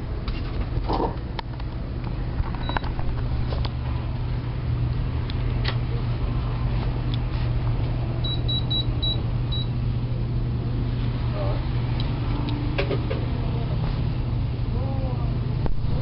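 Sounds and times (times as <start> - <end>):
steady low hum: 0.0 - 16.0
cash register beeps: 8.2 - 9.7.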